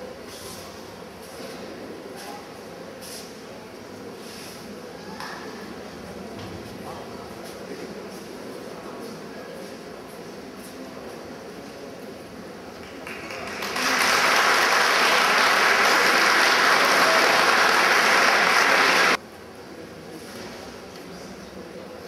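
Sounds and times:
audience applauding: 12.8 - 19.2.

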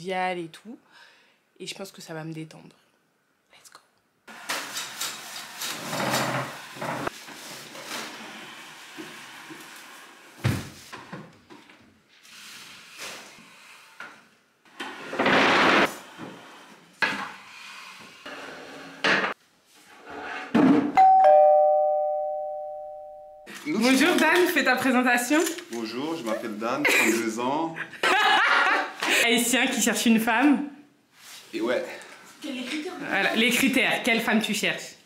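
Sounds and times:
furniture scraping on floor: 4.4 - 11.3, 12.2 - 21.0
two-tone doorbell: 21.0 - 23.5.

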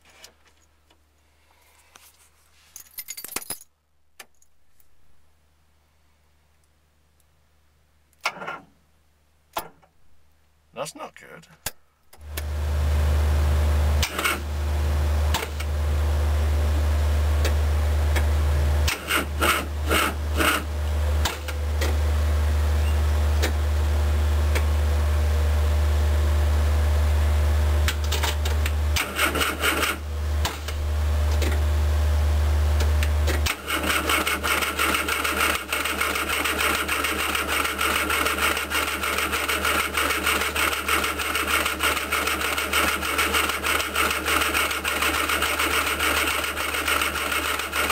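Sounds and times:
car engine running unevenly: 12.4 - 47.9
fast mechanical clatter: 18.9 - 22.0, 27.9 - 30.8, 33.2 - 47.9.

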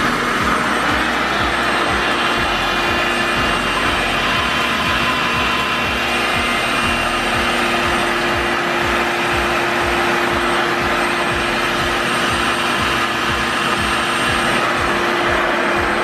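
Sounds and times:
blow dryer motor whining: 0.0 - 16.0.

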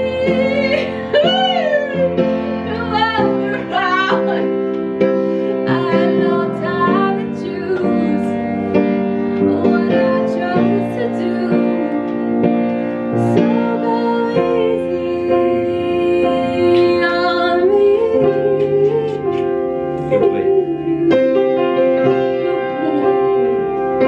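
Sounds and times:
piano playing: 0.0 - 24.0
person singing: 5.6 - 12.1, 13.1 - 24.0.

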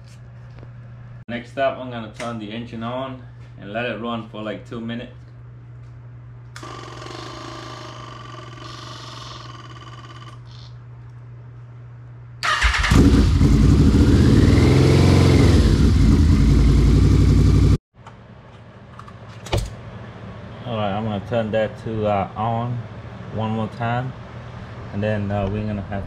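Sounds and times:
motorcycle engine starting and revving: 12.4 - 17.8.

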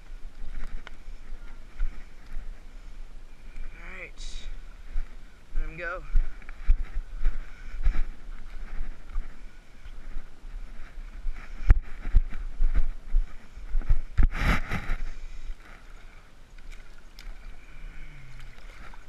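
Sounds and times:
footsteps on rocks and sand: 0.0 - 19.0
wind on microphone: 0.0 - 19.0
water splash: 18.2 - 19.0.

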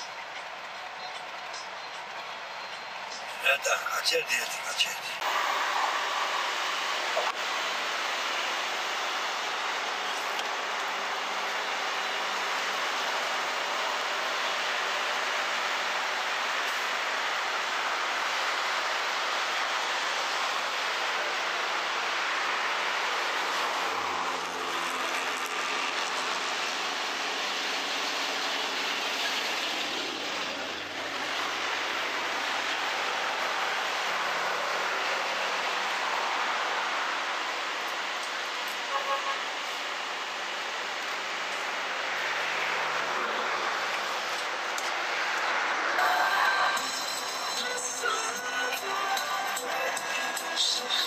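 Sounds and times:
road traffic hiss: 0.0 - 51.0
truck engine droning past: 5.2 - 38.2.

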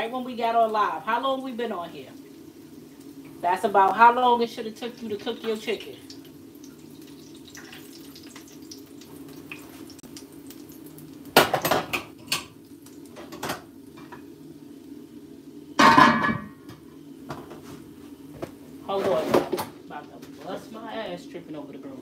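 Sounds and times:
dishes and utensils clattering: 11.4 - 12.5, 15.8 - 17.6.

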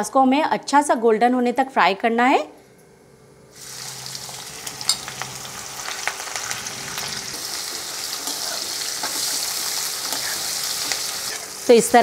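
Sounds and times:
onions sizzling in hot oil: 3.6 - 12.0
metal spoon scraping a pan: 7.6 - 11.5.

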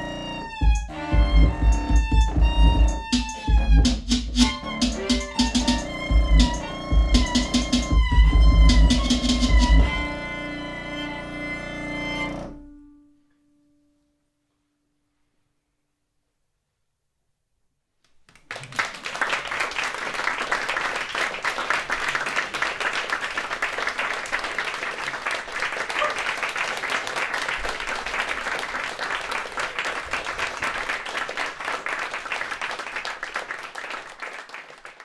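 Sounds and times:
audience applause: 18.3 - 35.0.

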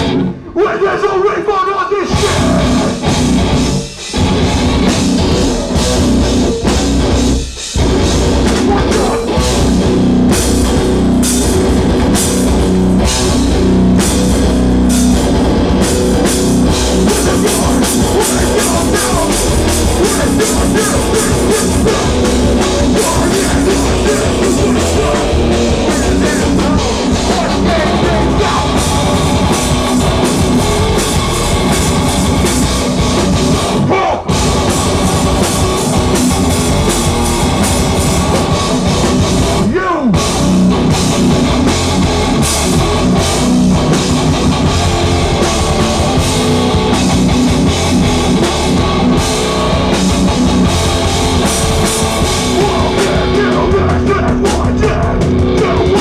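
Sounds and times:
hardcore band playing live: 0.0 - 56.0.

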